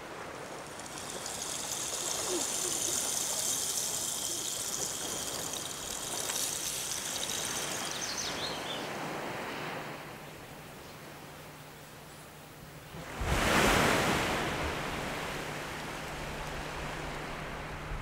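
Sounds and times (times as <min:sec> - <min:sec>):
seawater washing over rocks: 0:00.0 - 0:09.4
faint high chirps: 0:00.5 - 0:08.9.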